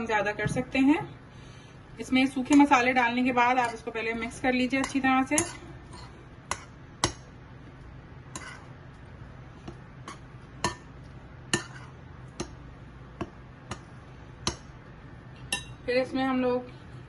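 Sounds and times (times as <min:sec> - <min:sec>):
utensil clinking on glass bowl: 0:15.4 - 0:15.8.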